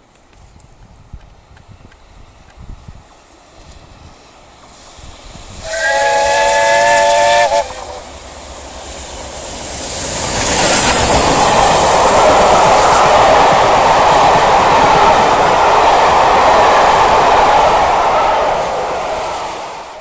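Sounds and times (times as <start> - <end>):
train passing with steam and wheels: 0.0 - 20.0
steam locomotive whistle: 4.8 - 8.2, 11.3 - 20.0.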